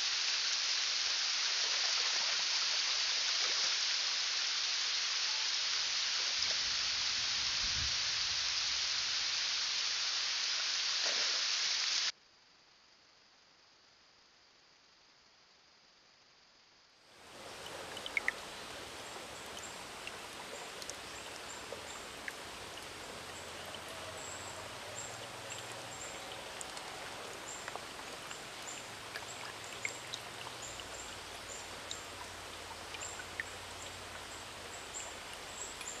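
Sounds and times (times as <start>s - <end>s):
creek trickling: 17.1s - 36.0s
water drips: 17.2s - 36.0s.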